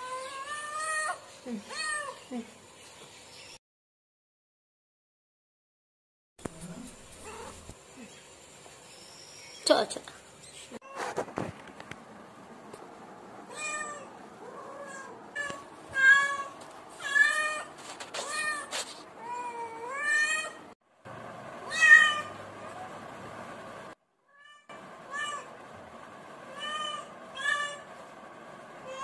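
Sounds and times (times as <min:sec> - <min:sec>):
cat meowing: 0:13.5 - 0:20.6, 0:21.7 - 0:22.4, 0:24.3 - 0:25.5, 0:26.5 - 0:27.8.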